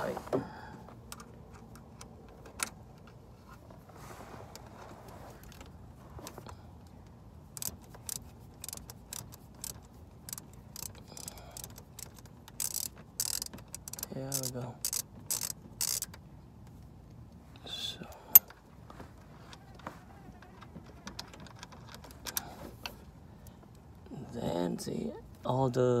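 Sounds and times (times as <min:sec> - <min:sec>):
wrench clicking on bolt: 0:07.6 - 0:16.2.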